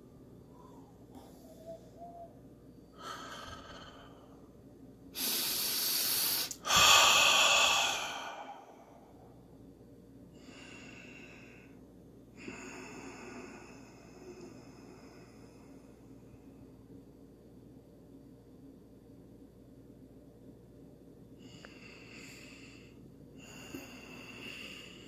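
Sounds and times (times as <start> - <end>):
person breathing deeply: 0.4 - 9.5, 10.3 - 11.8, 12.4 - 16.8, 21.4 - 25.0.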